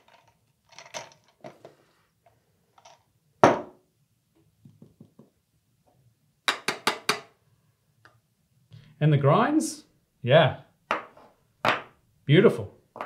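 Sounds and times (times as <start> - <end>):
jar knocking on countertop: 3.4 - 3.8.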